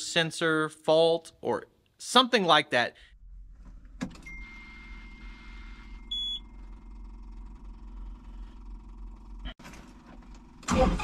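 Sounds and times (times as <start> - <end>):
tractor engine humming: 3.1 - 10.8
short loud beep: 4.2 - 6.4
steady electronic warning tone: 4.2 - 6.6.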